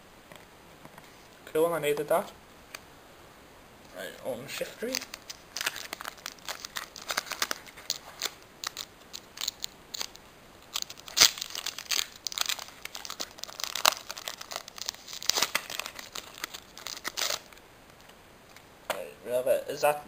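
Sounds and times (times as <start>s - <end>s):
foil wrapper crinkling and tearing: 4.5s - 18.1s.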